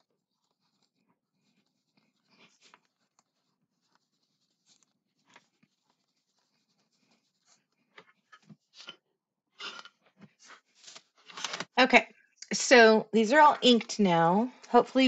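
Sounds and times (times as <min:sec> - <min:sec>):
paper rustling and tapping: 0:09.7 - 0:11.8.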